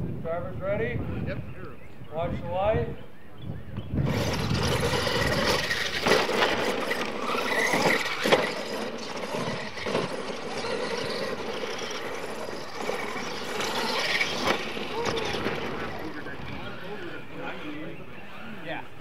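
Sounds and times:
toy truck motors whining: 3.8s - 19.0s
tyres on dirt: 3.8s - 19.0s.

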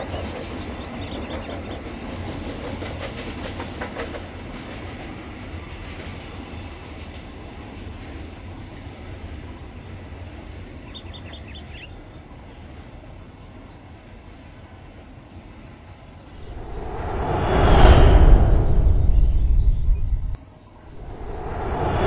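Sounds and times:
loud whoosh: 16.4s - 20.4s, 21.0s - 22.0s.

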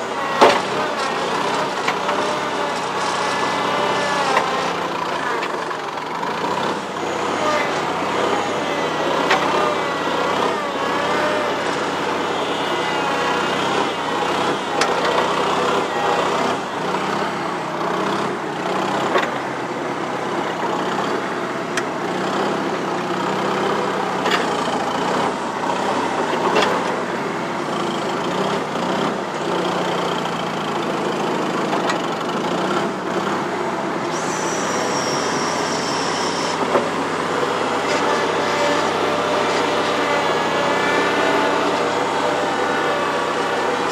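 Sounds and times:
skid steer engine running: 0.0s - 43.9s
short high whine: 34.1s - 39.0s.

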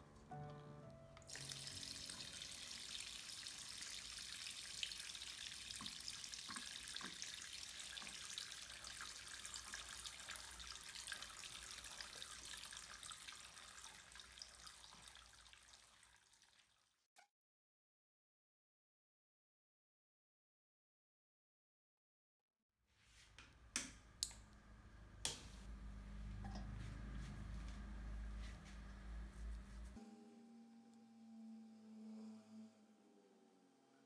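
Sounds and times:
water splashing into basin: 1.3s - 16.8s.

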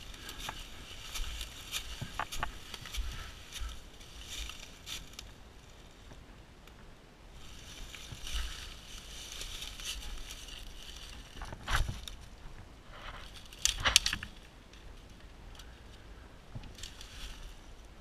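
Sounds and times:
dry leaves and twigs crunching: 0.0s - 6.2s, 7.3s - 16.0s, 16.6s - 18.0s.

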